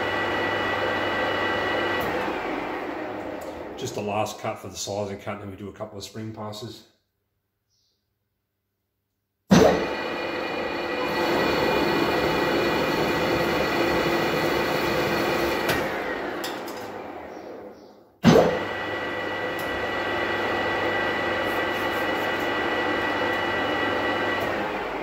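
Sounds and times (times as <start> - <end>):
lathe running with whine: 9.8 - 17.6, 18.6 - 25.0.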